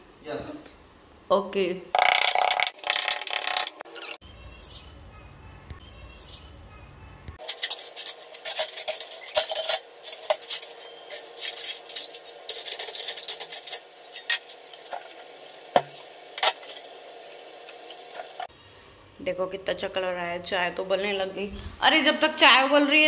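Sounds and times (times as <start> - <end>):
utensils and dishes clinking: 7.4 - 18.5.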